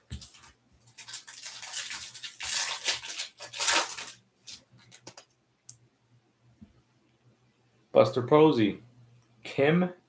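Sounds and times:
foil wrapper crinkling: 0.1s - 5.2s
foil pack tearing open: 0.2s - 4.6s.

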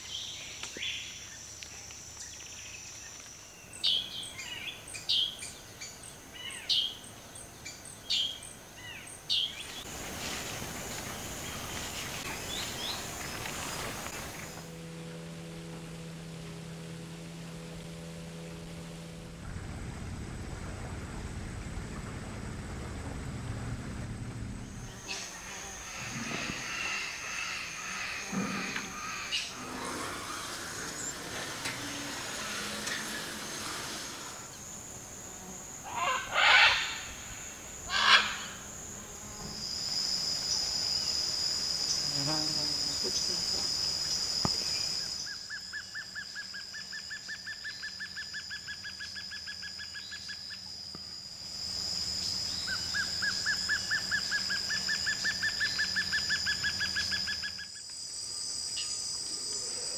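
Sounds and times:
insects droning: 0.0s - 59.9s
rapid pulsing trill: 14.3s - 25.0s.

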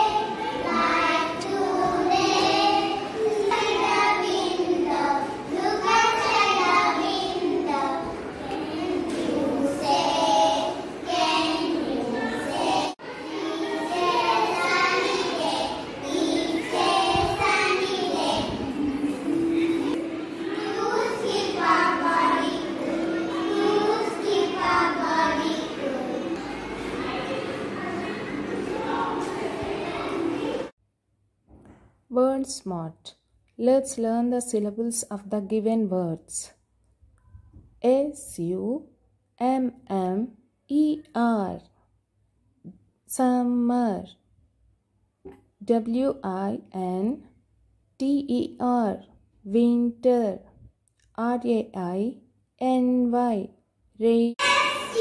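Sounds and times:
young children singing in unison: 0.0s - 30.7s, 54.4s - 55.0s.

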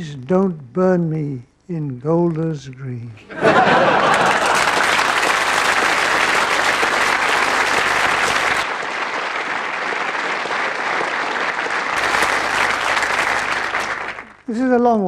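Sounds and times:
audience applauding: 3.4s - 14.5s.

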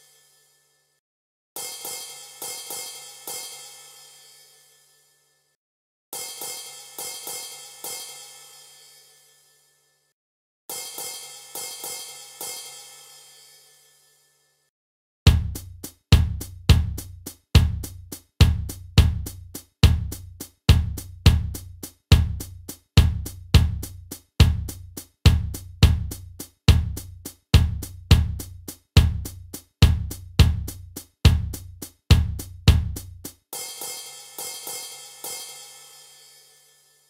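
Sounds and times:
cymbal ringing: 1.6s - 5.4s, 6.2s - 10.0s, 10.7s - 14.6s, 33.6s - 37.0s
bass drum beat: 15.3s - 33.5s.

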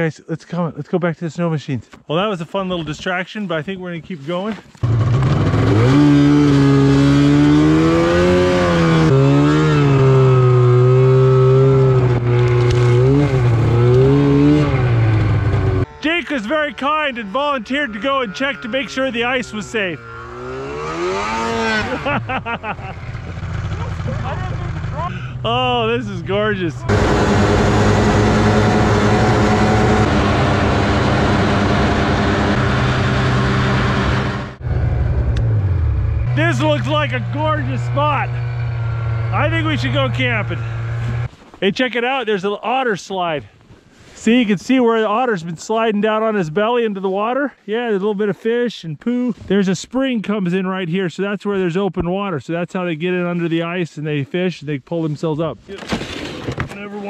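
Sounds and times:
snowmobile engine under throttle: 4.8s - 41.3s.

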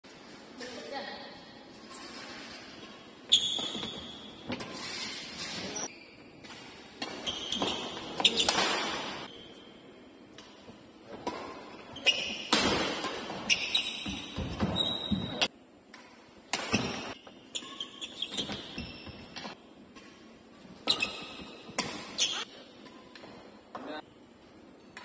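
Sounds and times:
shoes squeaking on court floor: 1.7s - 9.8s, 10.5s - 15.5s, 16.6s - 24.0s
rackets hitting shuttlecock: 6.4s - 9.3s, 10.3s - 14.8s, 15.9s - 23.9s.

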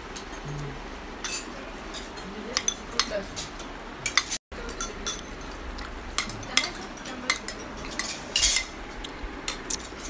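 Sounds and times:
spoons clinking against plates: 1.2s - 8.8s.

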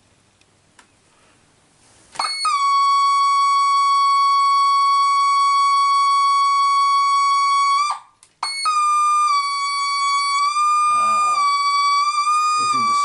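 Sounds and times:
digital horn long synthesized note: 10.7s - 13.0s.

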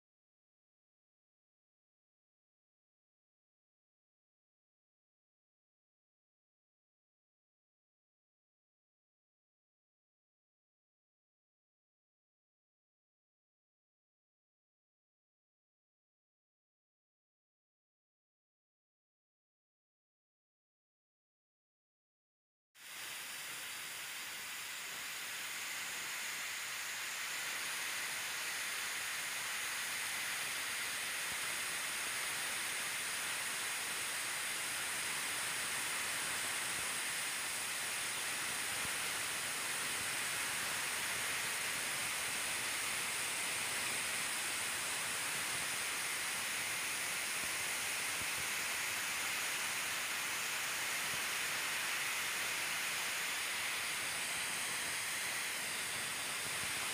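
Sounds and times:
steady high hiss: 22.8s - 56.9s.

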